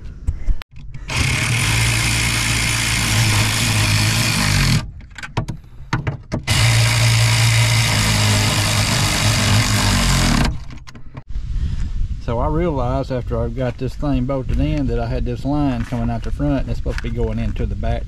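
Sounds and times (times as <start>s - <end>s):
power tool motor running: 1.0s - 4.9s, 6.4s - 10.6s.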